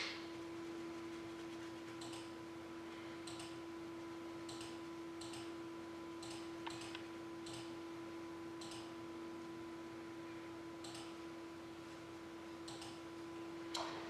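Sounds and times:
low electrical hum: 0.0s - 14.0s
computer mouse clicks: 2.0s - 2.3s, 3.2s - 3.6s, 4.4s - 5.5s, 6.2s - 7.7s, 8.6s - 8.9s, 10.8s - 11.2s, 12.6s - 13.0s.

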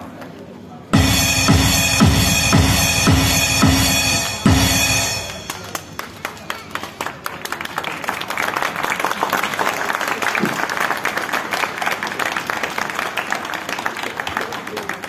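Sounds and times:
crowd applauding: 5.4s - 15.0s.

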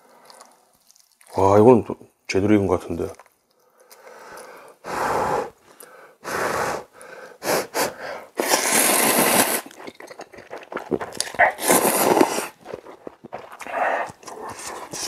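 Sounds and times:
wet chewing: 0.0s - 1.6s, 3.0s - 4.8s, 8.4s - 15.0s
man blowing on noodles: 4.8s - 5.6s, 6.2s - 10.2s, 11.4s - 12.6s
loud slurping: 7.4s - 15.0s.

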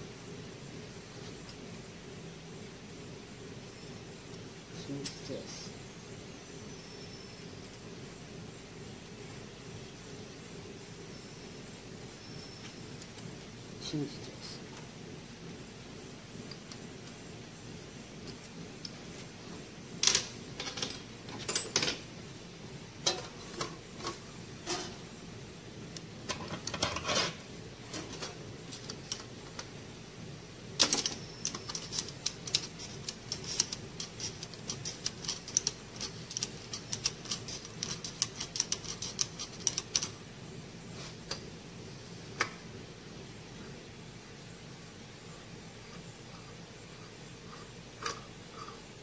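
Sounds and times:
steel tools clanking on metal: 20.1s - 22.0s, 23.1s - 25.0s.

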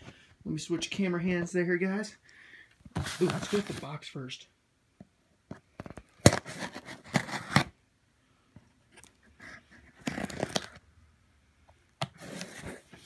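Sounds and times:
paper and cardboard rustling: 2.9s - 4.0s, 6.2s - 7.7s, 9.0s - 10.8s, 12.1s - 13.0s.

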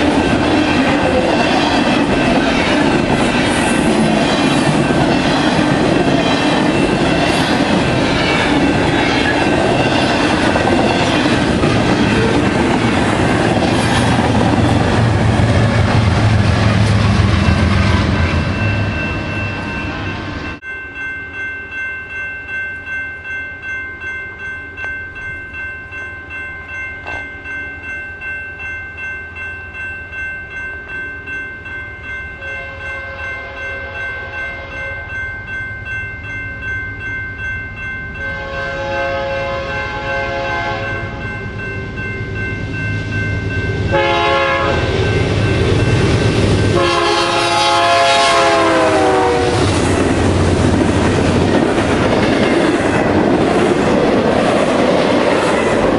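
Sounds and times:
crossing warning bell ringing: 0.0s - 55.9s
passing train noise: 0.0s - 55.9s
locomotive air horn blasts: 38.2s - 41.2s, 43.9s - 44.9s, 46.7s - 49.7s.

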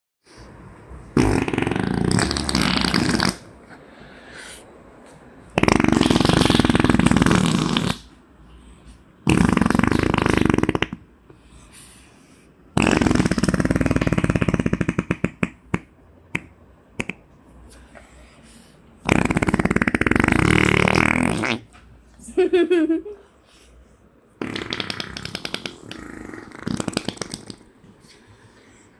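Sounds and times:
child blowing raspberries: 5.6s - 8.1s, 12.8s - 15.6s, 19.0s - 21.7s, 24.4s - 27.6s.

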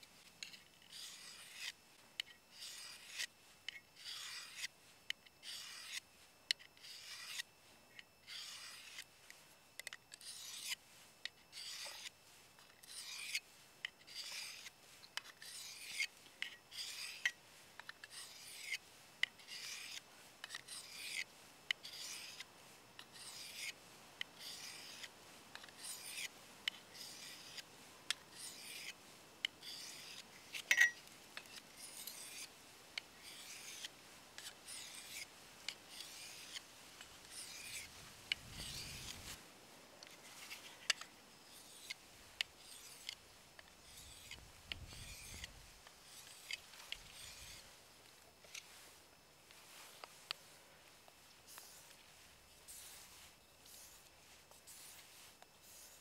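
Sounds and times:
knife scraping on sharpening plate: 29.6s - 32.5s.

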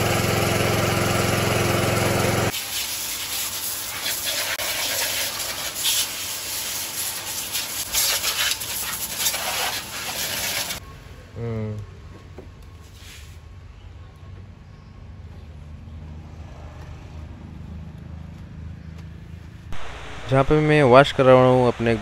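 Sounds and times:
washer pump motor humming: 0.0s - 2.5s, 6.8s - 10.8s
water spraying onto motorcycle: 2.5s - 10.8s.

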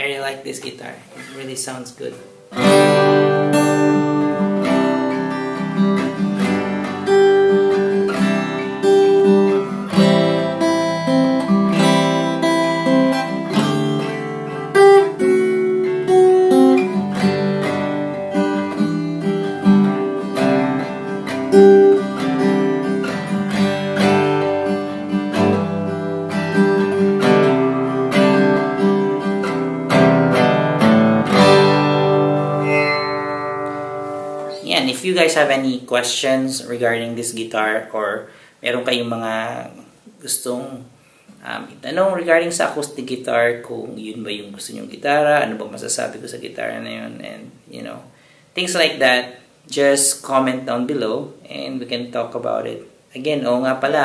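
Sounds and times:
acoustic guitar strumming: 0.6s - 35.7s.

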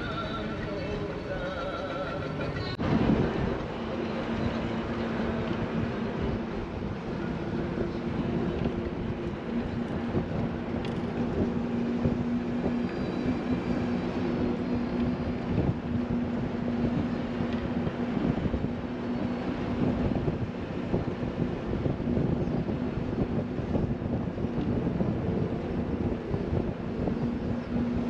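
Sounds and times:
bus engine drone: 0.0s - 28.0s
rumbling road noise: 0.0s - 28.0s.

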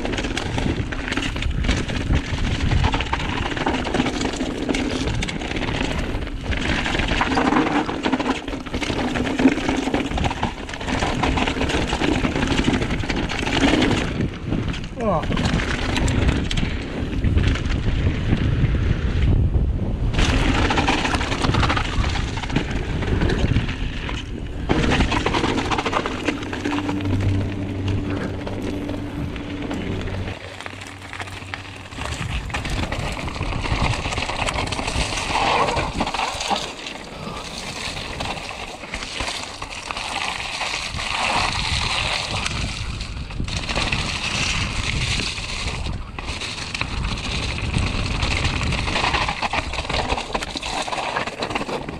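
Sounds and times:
wind buffeting microphone: 0.0s - 7.3s, 10.0s - 36.5s, 40.5s - 50.4s
tyres crunching on loose stones: 0.0s - 18.7s, 20.1s - 51.9s
bike rattling over bumps: 0.0s - 51.9s
low steady hum: 24.3s - 37.7s.

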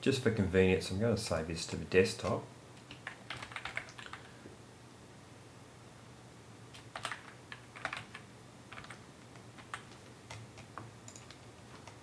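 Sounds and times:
typing on computer keyboard: 2.2s - 4.3s, 6.8s - 12.0s.

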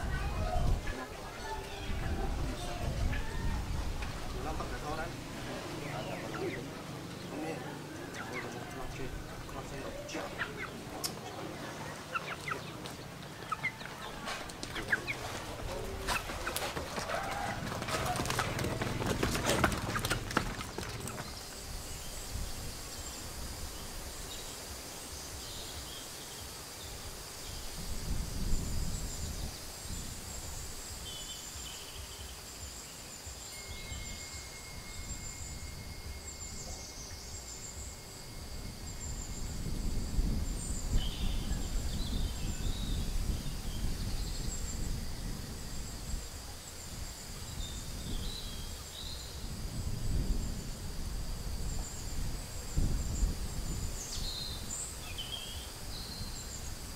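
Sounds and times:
bird chirps: 4.8s - 16.6s
clatter of knocks: 16.6s - 21.3s
high-pitched insect drone: 21.2s - 56.9s.

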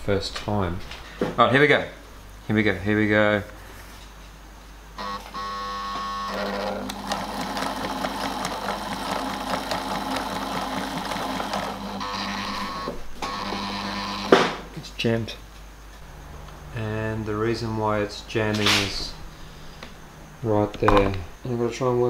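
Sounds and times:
sewing machine motor hum: 5.0s - 14.6s.

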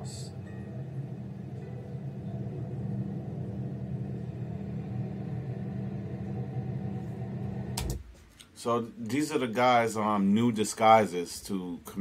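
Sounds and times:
low rumble and hum: 0.0s - 8.1s.

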